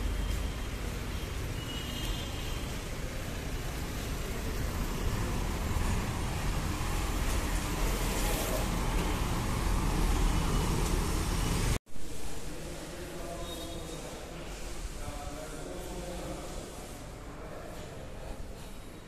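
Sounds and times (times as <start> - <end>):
traffic rumble: 0.0 - 11.8.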